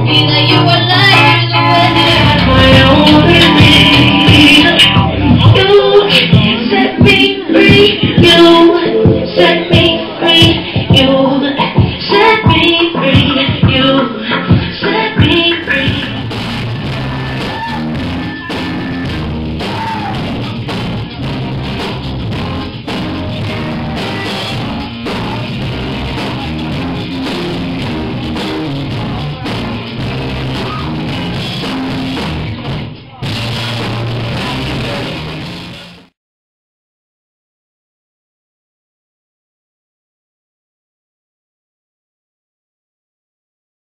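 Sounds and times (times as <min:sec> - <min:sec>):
person singing: 0:00.0 - 0:20.6, 0:21.2 - 0:32.0
drum kit: 0:00.0 - 0:36.1
electric guitar: 0:00.0 - 0:36.1.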